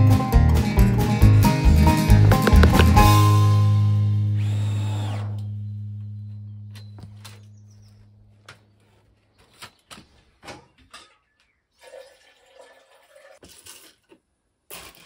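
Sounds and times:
low hum: 2.1 - 8.4.

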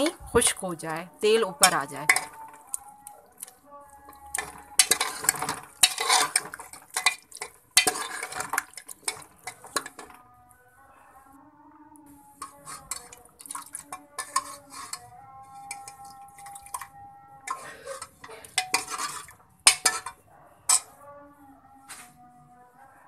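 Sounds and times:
metal spatula scraping a pot: 0.9 - 10.2, 12.2 - 21.1
food frying in oil: 4.1 - 10.1, 12.4 - 15.0, 17.5 - 20.2.

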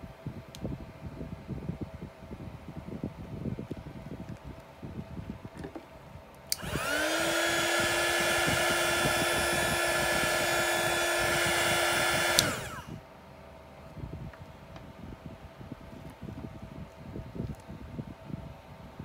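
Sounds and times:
heat gun switch click: 6.5 - 12.9
blown air rush: 6.5 - 13.0
heat gun motor whine: 6.5 - 13.0.

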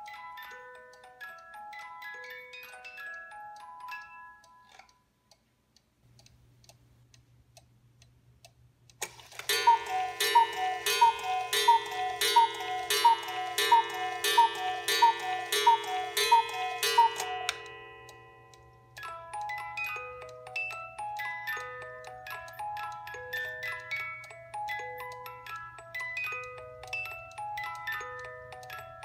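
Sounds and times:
faint clock ticking: 0.0 - 29.0
clock mechanism click: 8.9 - 19.9
cuckoo clock calling: 9.1 - 29.0.

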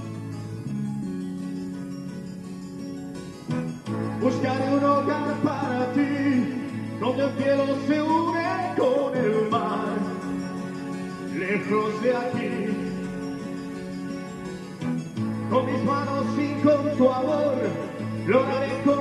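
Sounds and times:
karaoke backing track: 0.0 - 19.0
man singing into microphone: 4.2 - 10.6, 11.3 - 13.2, 15.5 - 19.0.

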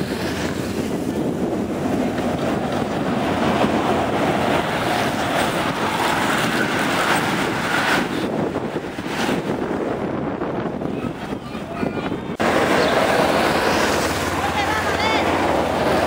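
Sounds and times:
wind on microphone: 0.0 - 16.0
bicycles whooshing past: 12.4 - 16.0.

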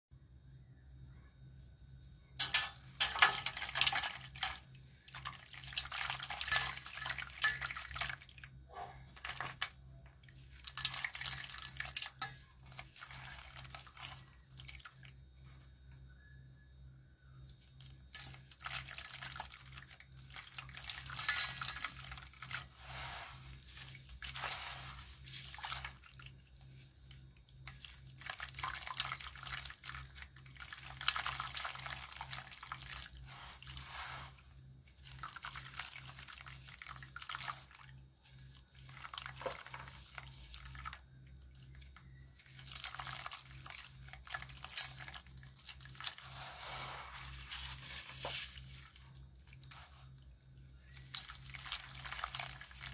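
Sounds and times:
faint low hum: 0.1 - 52.9.

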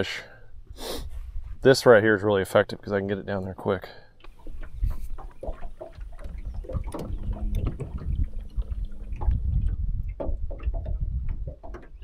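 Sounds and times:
water lapping against boat hull: 2.8 - 12.0
wind buffeting microphone: 4.3 - 12.0
small knocks and taps: 9.2 - 12.0.

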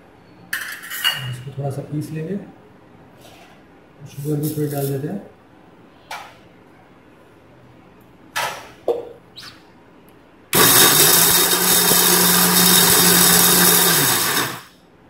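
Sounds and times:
mixer grinder running: 10.6 - 14.8.

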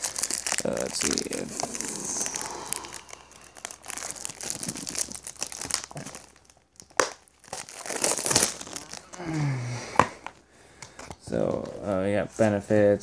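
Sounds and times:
plastic wrapping crinkling and tearing: 0.0 - 10.4.

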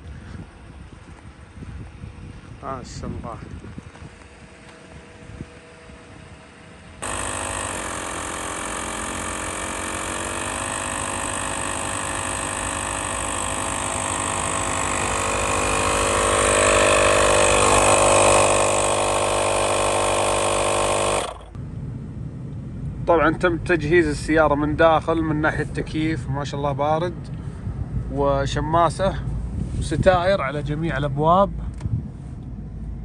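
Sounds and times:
air compressor motor humming: 0.0 - 21.6.

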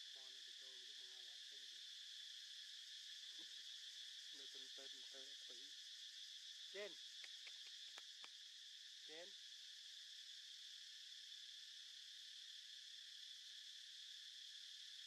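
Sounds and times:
insect chorus drone: 0.0 - 15.0.

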